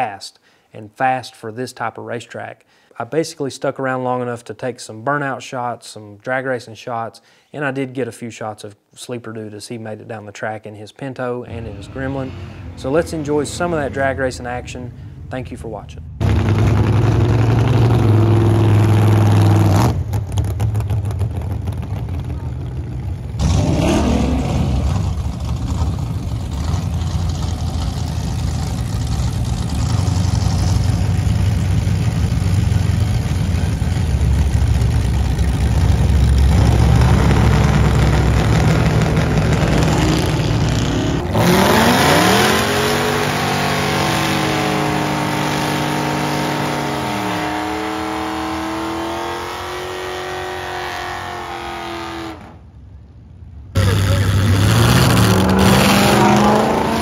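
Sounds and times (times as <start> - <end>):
drag race engines rumbling: 11.2 - 57.0
engine revving at high rpm: 16.2 - 20.2, 23.4 - 52.5, 53.8 - 57.0.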